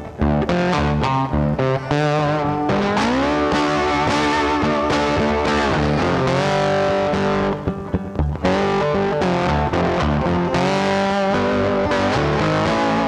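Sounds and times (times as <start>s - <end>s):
electric guitar music: 0.0s - 13.0s.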